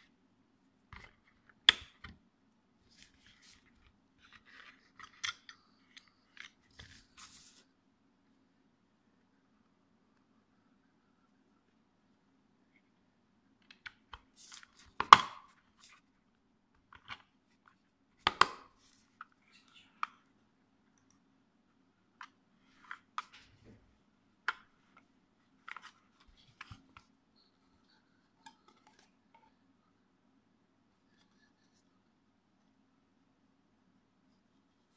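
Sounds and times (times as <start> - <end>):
plastic parts clicking and knocking: 18.2 - 18.7.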